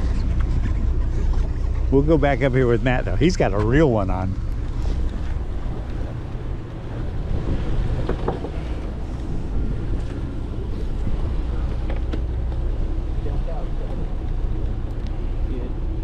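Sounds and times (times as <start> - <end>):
boat engine rumble: 0.0 - 16.0
wind on microphone: 4.3 - 12.4
faint clicks: 14.3 - 15.2.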